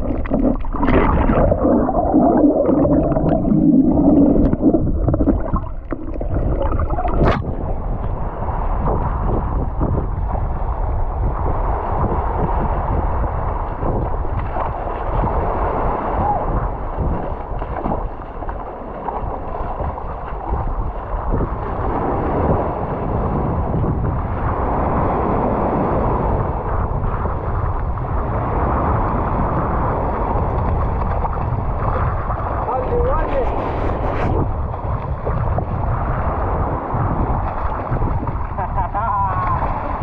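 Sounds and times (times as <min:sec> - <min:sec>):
sea waves washing over rocks: 0:00.0 - 0:09.9, 0:11.6 - 0:40.0
wind buffeting microphone: 0:00.0 - 0:40.0.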